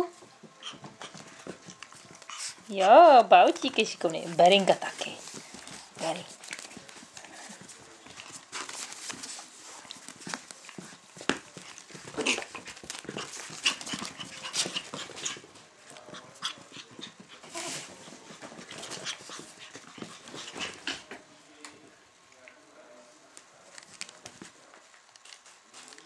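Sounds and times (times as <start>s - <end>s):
paws clicking and scratching on floor: 0.0s - 21.8s, 23.3s - 26.0s
puppies panting: 0.5s - 2.8s, 4.4s - 21.1s.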